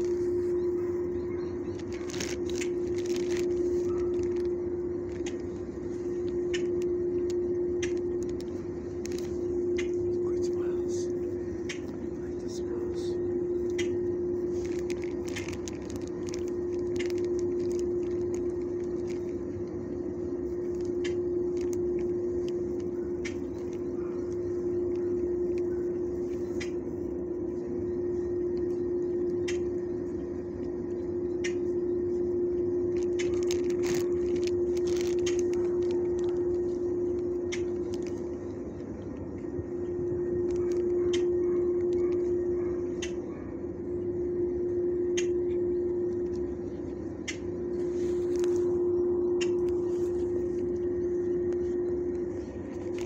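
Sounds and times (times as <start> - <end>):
steady machine hum: 0.0 - 53.0.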